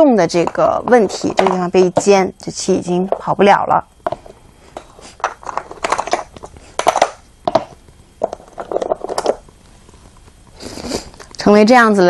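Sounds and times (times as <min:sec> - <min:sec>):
game stones clacking on a board: 0:04.8 - 0:09.4.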